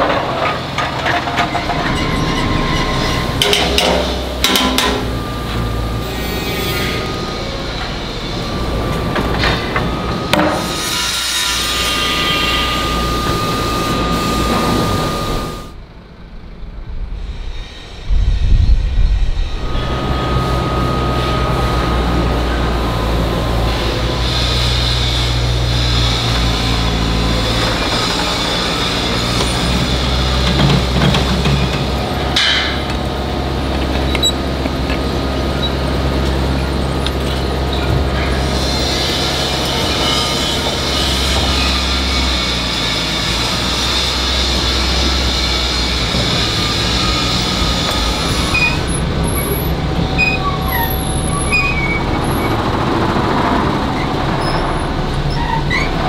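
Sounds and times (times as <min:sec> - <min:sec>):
metal clanks and knocks: 0:00.0 - 0:05.8, 0:27.4 - 0:33.1
loader engine running: 0:00.0 - 0:10.9, 0:11.5 - 0:17.5, 0:19.0 - 0:56.0
steady high machine whine: 0:00.0 - 0:55.4.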